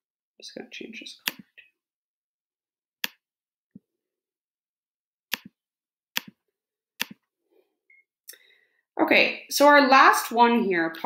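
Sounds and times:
computer mouse clicks: 1.2 - 1.5, 5.3 - 5.6, 6.2 - 6.4.

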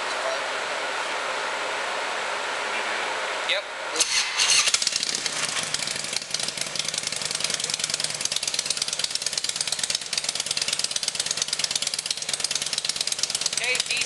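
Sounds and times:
motorcycle engine idling: 4.5 - 14.0.

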